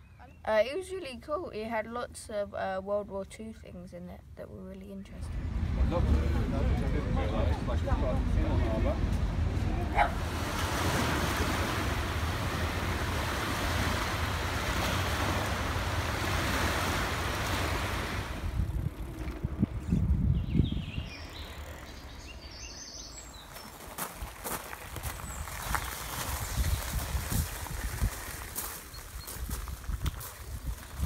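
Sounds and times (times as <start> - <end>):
low bumps: 5.1 - 31.0
wind on microphone: 5.2 - 21.8, 24.2 - 31.0
small waves washing on sand: 6.8 - 18.6, 23.8 - 30.9.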